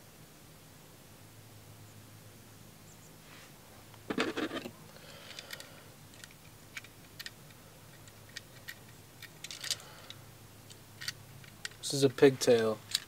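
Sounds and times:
plastic clicks and rattles: 5.3 - 11.9, 12.6 - 13.0.

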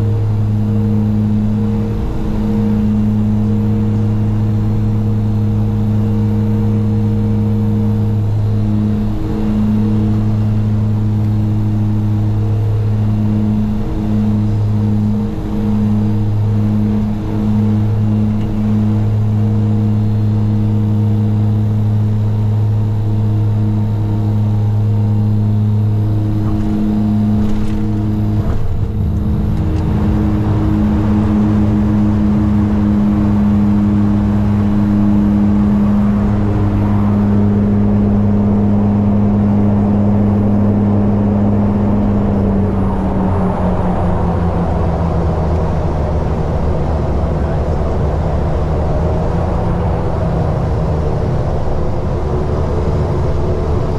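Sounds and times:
turboprop engine and propeller drone: 0.0 - 53.9
rushing noise: 26.2 - 38.2.

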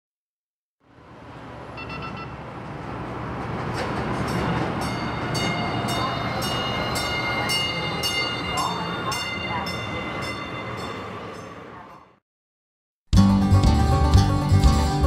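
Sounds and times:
light rail train rumbling: 0.8 - 12.2
short beeps: 1.8 - 2.4
bell ringing steadily: 4.3 - 12.2.

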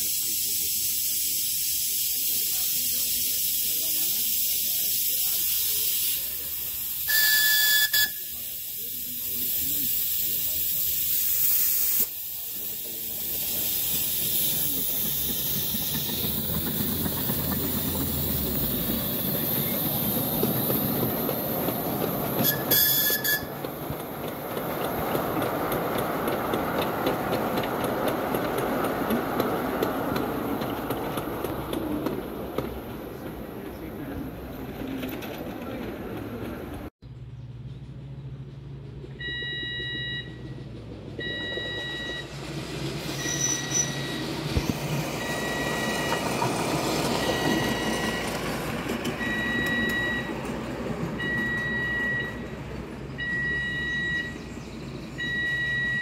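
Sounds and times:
steam locomotive hissing: 0.0 - 36.9, 40.3 - 54.3
train whistle: 7.0 - 8.4, 22.4 - 23.5
wagons rumbling and clattering: 13.0 - 36.9, 38.4 - 56.0.

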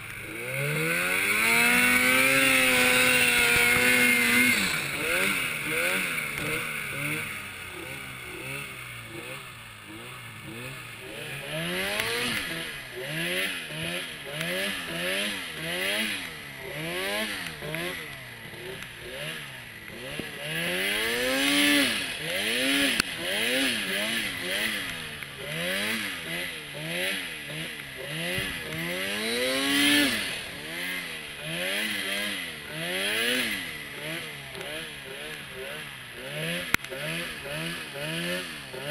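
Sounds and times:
snowmobile engine revving: 0.0 - 38.9.

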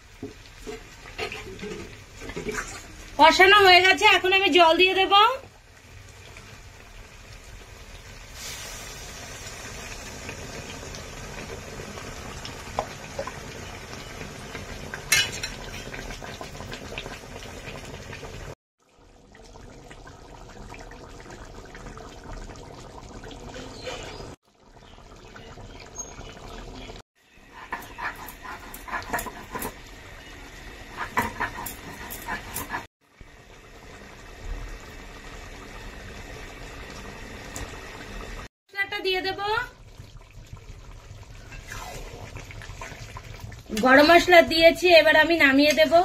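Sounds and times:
curry bubbling with pops: 0.0 - 3.2, 4.8 - 27.0, 27.6 - 38.5, 39.5 - 44.6
liquid hissing in a pan: 8.0 - 13.2.

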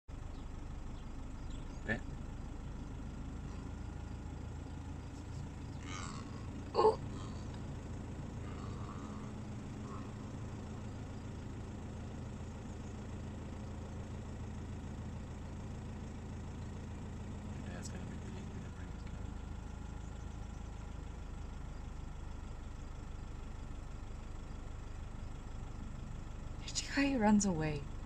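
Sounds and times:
car engine idling: 0.1 - 28.0.

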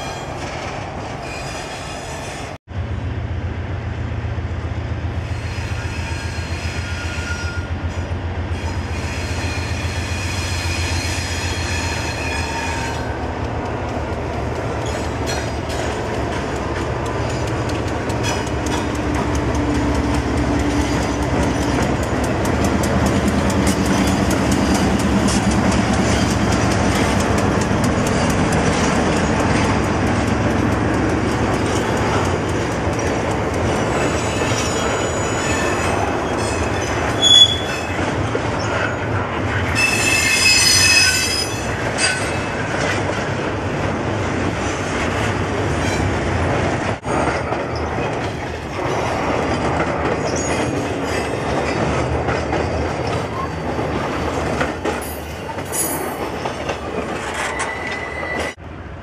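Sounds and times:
diesel locomotives running past: 0.0 - 59.0
high wheel squeal: 5.3 - 7.7, 8.5 - 13.2, 33.8 - 38.0, 39.7 - 42.4, 57.3 - 58.6
train wheel clatter: 8.8 - 58.6.

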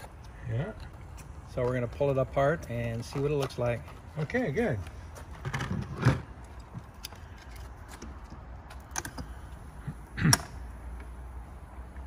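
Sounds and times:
hand tools clicking and knocking: 0.0 - 9.4.

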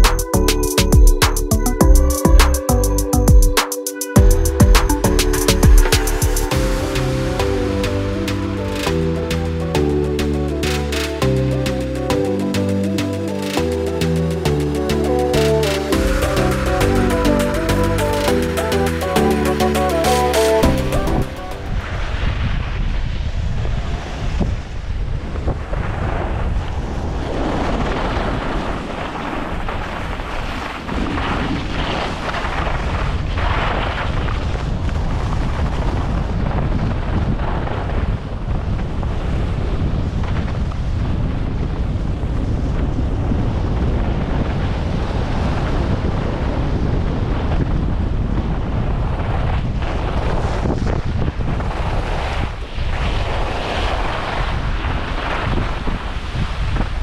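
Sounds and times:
wind buffeting microphone: 21.0 - 57.0.

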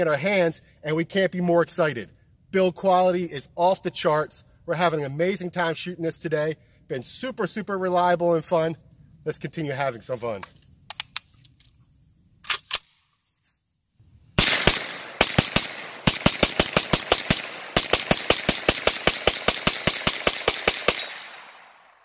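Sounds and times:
pistol firing rapid shots: 14.4 - 21.9.

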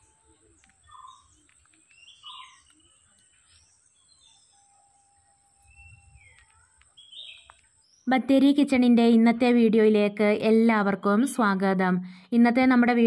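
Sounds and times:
faint high whine: 0.0 - 9.6
birds chirping: 0.0 - 13.0.

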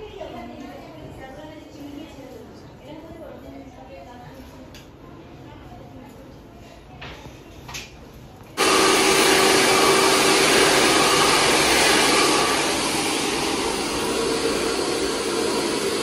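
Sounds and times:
hair dryer blowing: 8.6 - 16.0.

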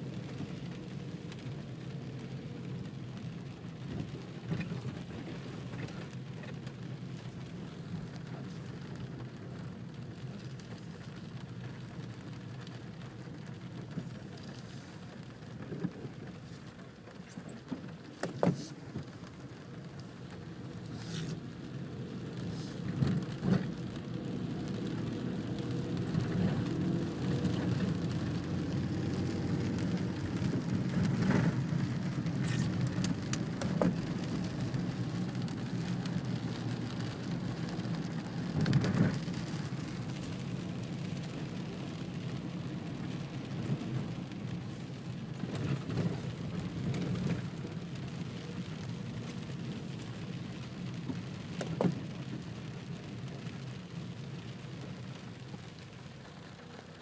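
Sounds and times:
rain on car windshield and roof: 0.0 - 57.0
car engine hum: 17.8 - 56.8.

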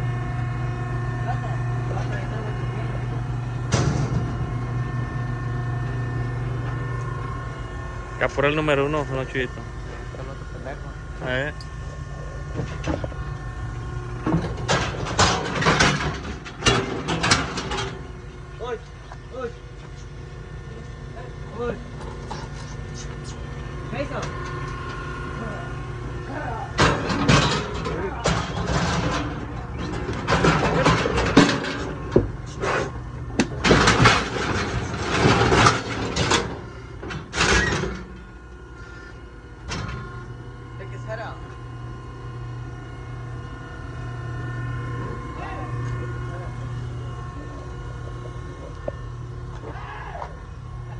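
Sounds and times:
metal gate banging and rattling: 14.3 - 18.1
metal gates banging and rattling: 14.3 - 18.1, 26.7 - 32.1.

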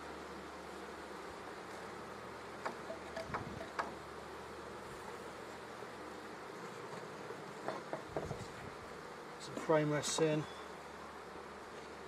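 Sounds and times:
bees humming: 0.0 - 12.0.

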